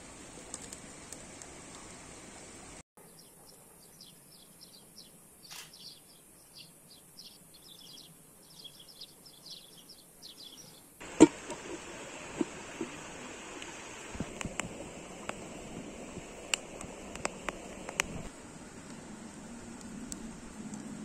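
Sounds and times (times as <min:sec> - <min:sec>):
crackling background: 0:00.0 - 0:21.0
small birds chirping: 0:03.0 - 0:18.3.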